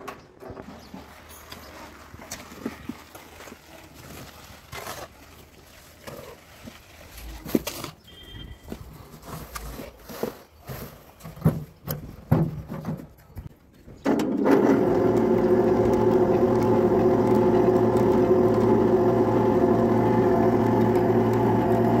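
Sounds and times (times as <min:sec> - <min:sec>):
knocks and clanks: 0:11.2 - 0:13.4
electric hoist motor humming: 0:14.2 - 0:22.0.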